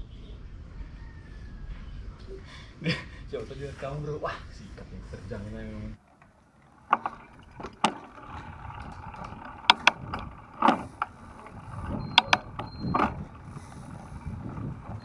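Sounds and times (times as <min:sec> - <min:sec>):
wind: 0:00.0 - 0:15.0
bike knocking and rattling: 0:06.0 - 0:15.0
bike tyres rumbling on concrete: 0:06.0 - 0:15.0.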